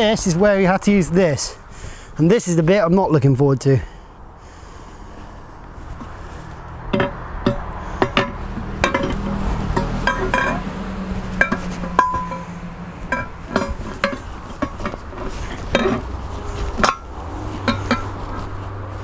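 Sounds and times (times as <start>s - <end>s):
tyre bar clinking on metal rim: 6.9s - 10.7s, 11.3s - 18.4s.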